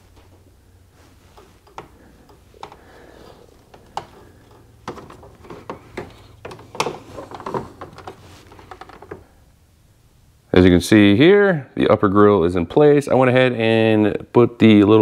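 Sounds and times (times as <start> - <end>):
plastic grille clicking and knocking: 1.3 - 9.3.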